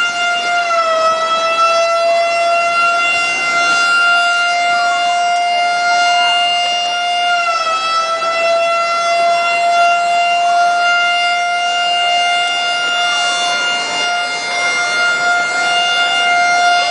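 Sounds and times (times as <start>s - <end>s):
alarm siren steady tone: 0.0s - 16.9s
faint rising and falling siren: 0.0s - 16.9s.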